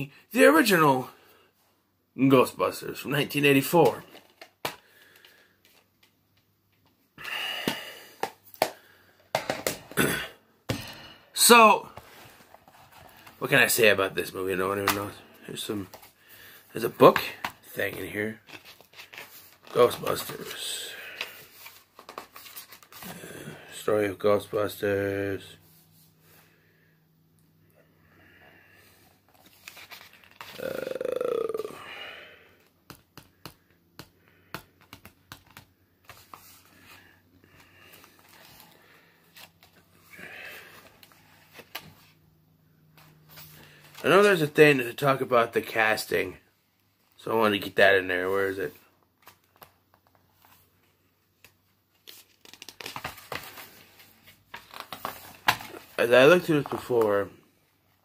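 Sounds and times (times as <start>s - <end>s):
book handling clicks and taps: 7.7s - 10.0s, 17.1s - 19.3s, 32.8s - 36.5s
pages rustling as turned: 16.9s - 23.2s, 29.3s - 30.6s, 34.8s - 40.0s, 51.4s - 57.3s.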